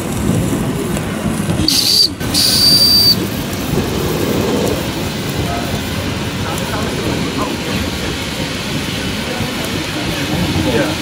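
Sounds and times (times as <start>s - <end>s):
high-pitched whistle toots: 1.7s - 3.2s.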